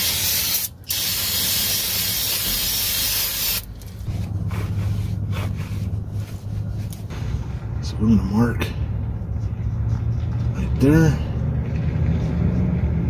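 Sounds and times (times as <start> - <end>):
aerosol spray hissing: 0.0 - 3.6.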